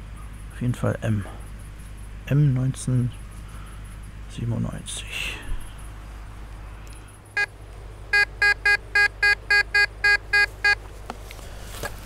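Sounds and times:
metal detector beeping: 0:08.1 - 0:10.8.

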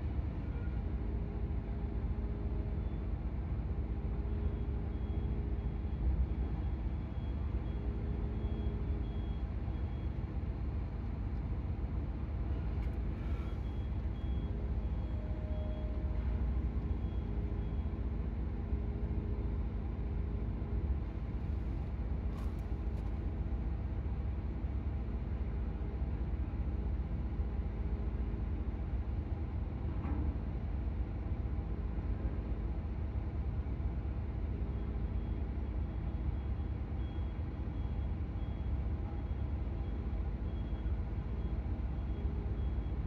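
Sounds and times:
low engine rumble: 0:00.0 - 0:43.0
reversing alarm beeping: 0:13.2 - 0:18.0, 0:35.1 - 0:43.0.

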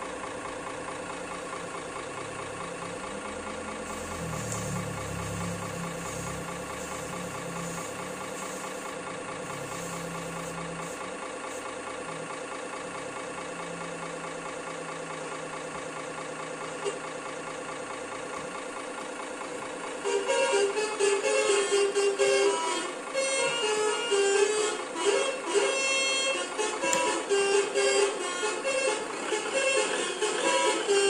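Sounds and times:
simulated diesel engine idling: 0:00.0 - 0:31.0.

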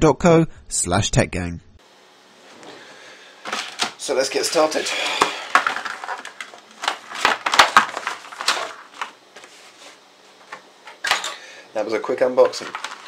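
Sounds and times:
packaging crinkling and rustling: 0:03.4 - 0:10.6, 0:12.4 - 0:13.0.

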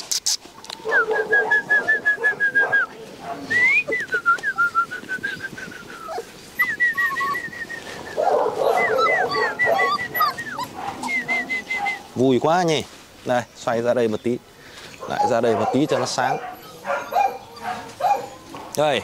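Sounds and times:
puppies whining and squealing: 0:05.2 - 0:12.1, 0:15.0 - 0:18.7
puppy yips: 0:06.0 - 0:07.5, 0:08.2 - 0:12.0, 0:15.0 - 0:18.5.

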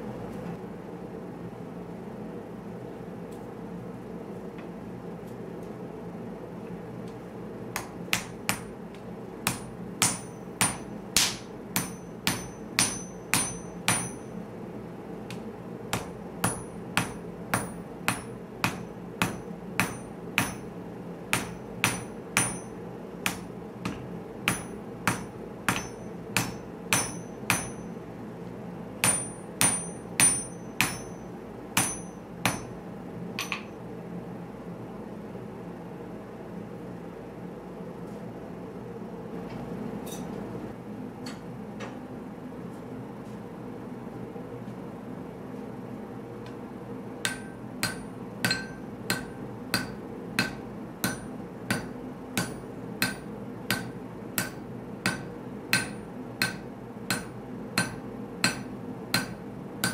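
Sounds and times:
gas forge burner hum: 0:00.0 - 0:59.9
hammer striking metal on anvil: 0:07.8 - 0:08.7, 0:09.4 - 0:14.4, 0:15.3 - 0:20.7, 0:21.3 - 0:27.9, 0:29.0 - 0:32.8, 0:33.4 - 0:33.8, 0:47.2 - 0:59.9.

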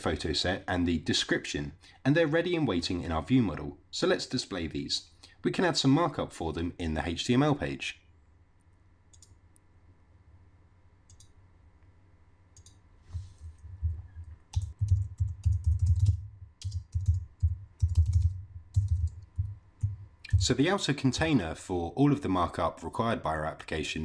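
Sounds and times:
typing on a computer keyboard: 0:14.5 - 0:20.5.

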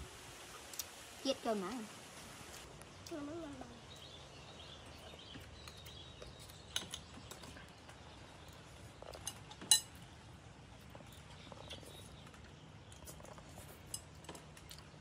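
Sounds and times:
spoons clinking on plates: 0:09.1 - 0:10.0.

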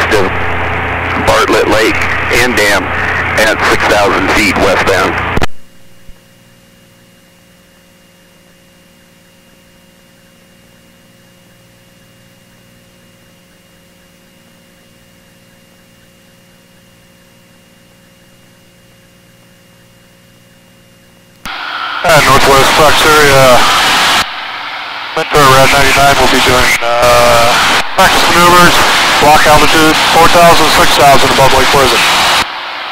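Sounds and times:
radio transmission: 0:00.0 - 0:05.5, 0:21.5 - 0:32.9
intercom electrical hum and hiss: 0:00.0 - 0:32.9.

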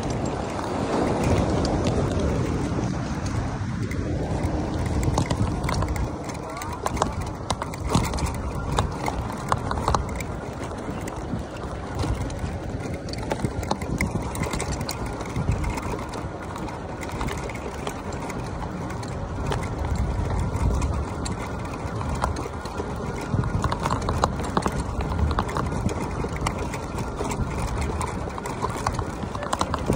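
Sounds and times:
bike clicks and knocks: 0:00.0 - 0:29.9
electric bike rumble: 0:00.0 - 0:29.9
wind buffeting microphone: 0:00.0 - 0:29.9.

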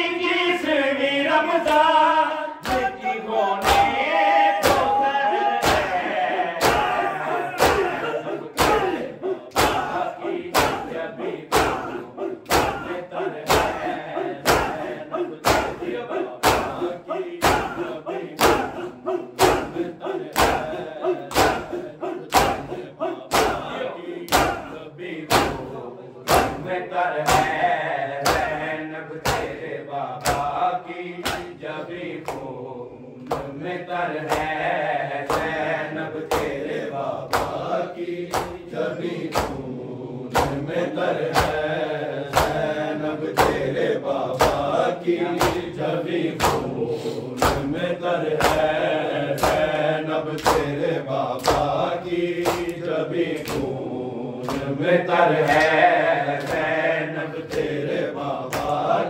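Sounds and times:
men chanting together: 0:00.0 - 0:59.0
hands slapping chests: 0:03.6 - 0:04.0, 0:04.6 - 0:25.7, 0:26.3 - 0:27.6, 0:28.2 - 0:29.6, 0:30.2 - 0:30.6, 0:31.2 - 0:31.6, 0:32.2 - 0:32.5, 0:34.2 - 0:35.6, 0:36.2 - 0:36.6, 0:37.3 - 0:39.6, 0:40.3 - 0:43.7, 0:44.3 - 0:45.7, 0:46.4 - 0:46.8, 0:47.4 - 0:50.8, 0:51.4 - 0:53.8, 0:54.4 - 0:54.8, 0:55.4 - 0:57.8, 0:58.5 - 0:58.9.

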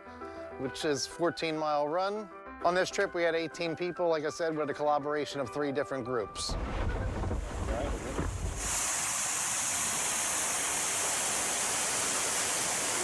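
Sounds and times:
water rushing over spillway: 0:06.5 - 0:13.0.

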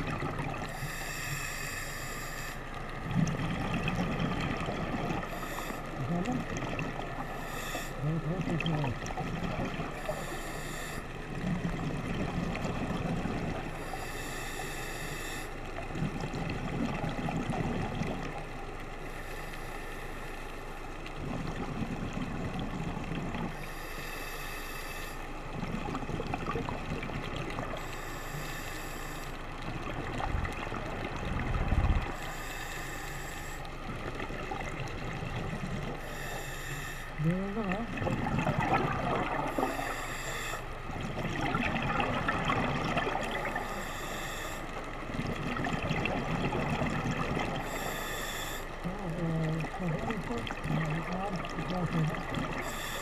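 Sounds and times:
exhaled bubbles rumbling: 0:00.0 - 0:00.8, 0:03.0 - 0:07.3, 0:08.0 - 0:10.2, 0:11.2 - 0:13.8, 0:15.8 - 0:18.6, 0:21.1 - 0:23.6, 0:25.4 - 0:27.9, 0:29.6 - 0:32.3, 0:37.2 - 0:40.0, 0:40.7 - 0:43.8, 0:44.8 - 0:47.8, 0:48.8 - 0:52.8
diver breathing through a regulator: 0:00.0 - 0:03.4, 0:05.1 - 0:06.0, 0:07.2 - 0:08.2, 0:09.9 - 0:11.7, 0:13.7 - 0:16.1, 0:19.0 - 0:20.8, 0:23.5 - 0:25.6, 0:27.7 - 0:29.5, 0:32.0 - 0:33.8, 0:35.8 - 0:37.2, 0:38.6 - 0:42.0, 0:42.6 - 0:45.0, 0:47.2 - 0:49.8, 0:51.4 - 0:53.0.

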